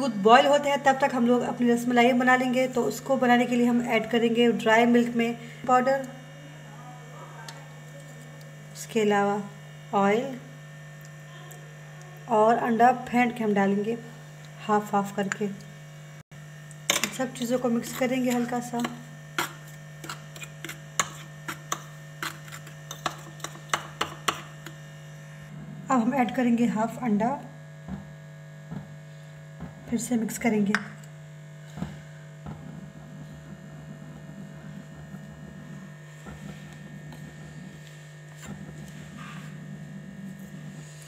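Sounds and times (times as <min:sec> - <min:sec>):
low electrical hum: 0:00.0 - 0:41.0
metal fork scraping bowl: 0:16.9 - 0:24.8.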